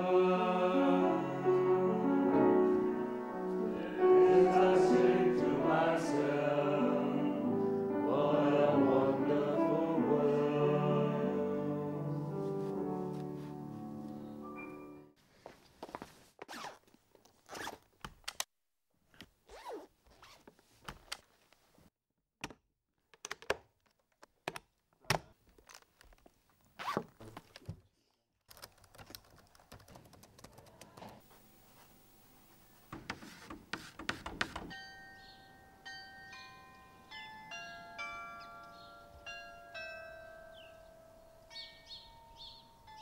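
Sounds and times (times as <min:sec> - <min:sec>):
footsteps: 0:15.3 - 0:16.5
high bell-like chime tune: 0:34.7 - 0:43.0.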